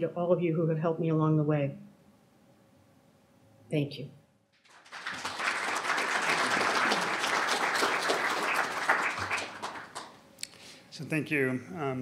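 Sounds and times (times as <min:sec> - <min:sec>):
audience applauding: 0:04.6 - 0:10.2.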